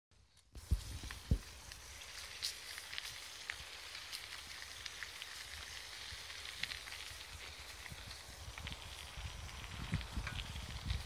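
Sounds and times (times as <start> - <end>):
bicycle tyres rolling on gravel: 0.2 - 11.0
wind on microphone: 0.6 - 2.0, 6.1 - 11.0.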